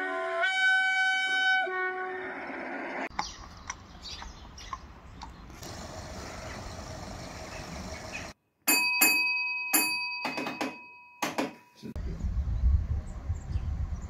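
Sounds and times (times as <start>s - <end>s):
block bell ringing: 8.7s - 11.8s.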